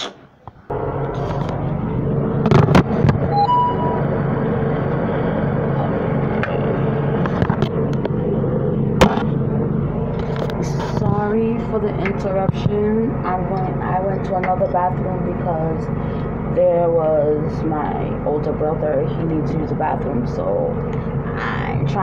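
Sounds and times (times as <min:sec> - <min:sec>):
steady machine hum: 0:00.0 - 0:22.0
brief beep: 0:03.3 - 0:04.1.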